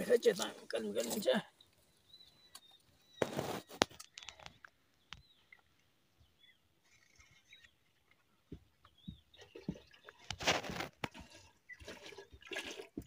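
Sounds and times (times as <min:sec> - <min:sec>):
faint bird chirps: 0:01.1 - 0:10.2.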